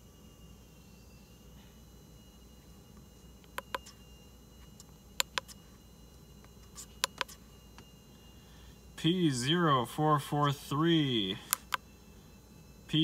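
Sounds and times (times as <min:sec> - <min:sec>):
handheld device button clicks: 0:07.0 - 0:07.3.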